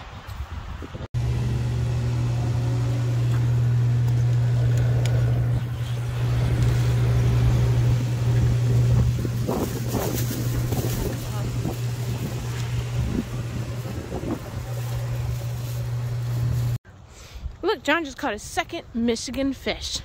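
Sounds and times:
gas pump motor hum: 1.2 - 16.8.

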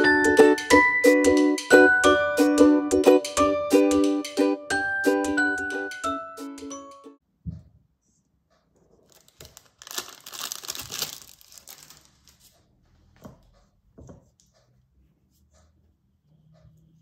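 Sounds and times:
paper crinkling: 9.0 - 12.6.

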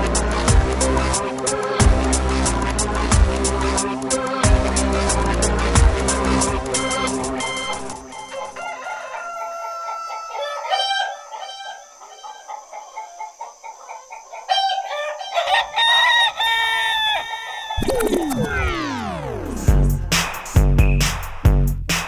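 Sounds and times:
techno bass: 0.0 - 1.2, 1.8 - 3.8, 4.4 - 7.6, 17.8 - 22.0
chicken clucks and calls: 6.7 - 19.2.

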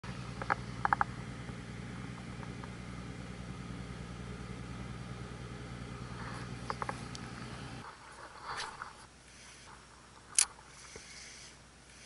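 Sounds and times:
low engine hum: 0.0 - 9.1.

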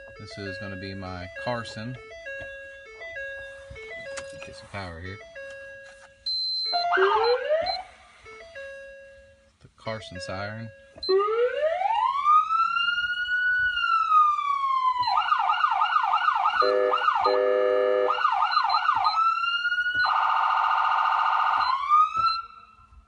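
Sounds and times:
electronic siren wailing and yelping: 6.6 - 8.4, 11.0 - 22.7.

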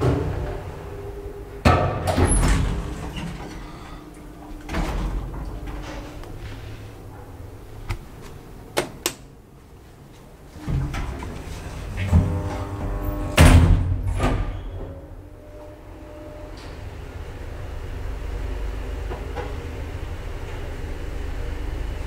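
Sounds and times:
elevator doors sliding and clunking: 0.0 - 9.4, 10.0 - 22.0
steady low hum: 0.0 - 14.3.

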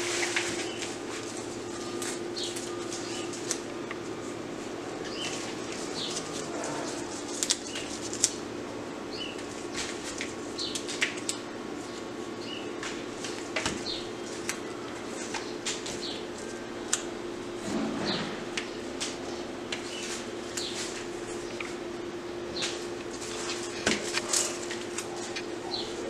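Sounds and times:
rustling of rose stems and leaves: 0.0 - 8.4.

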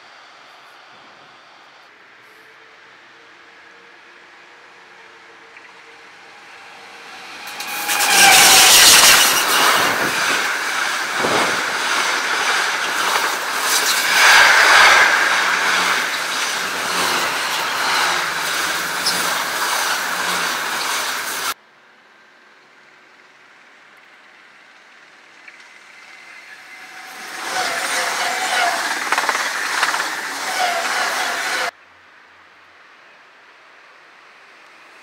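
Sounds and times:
freight train passing: 2.6 - 21.6, 25.7 - 31.7
wagon wheels rumbling and rattling: 7.3 - 21.6, 26.8 - 31.7.

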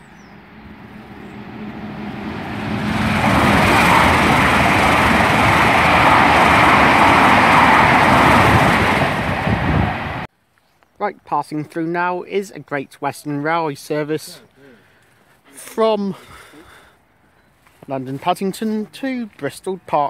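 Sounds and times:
train passing at speed: 0.0 - 10.3
wheels on rail rushing: 0.0 - 10.3.

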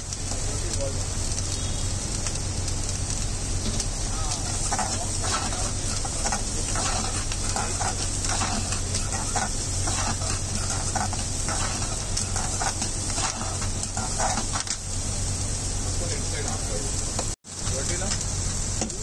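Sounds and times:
vegetables sizzling: 0.0 - 19.0
metal ladle scraping a pan: 4.4 - 14.9.

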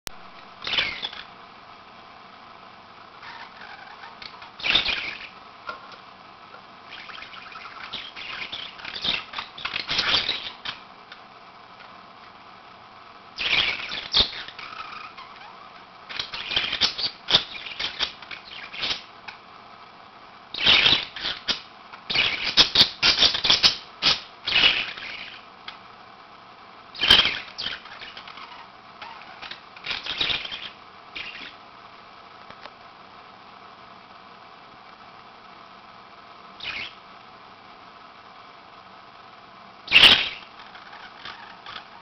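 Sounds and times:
budgerigars chirping: 0.6 - 1.3, 3.2 - 5.3, 6.9 - 10.8, 13.4 - 19.1, 20.6 - 25.4, 27.0 - 31.6, 36.6 - 37.0, 39.9 - 42.0.

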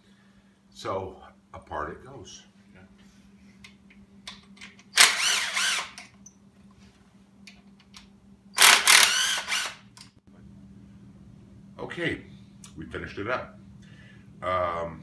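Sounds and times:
power ratchet running: 5.0 - 6.0, 8.6 - 9.9.

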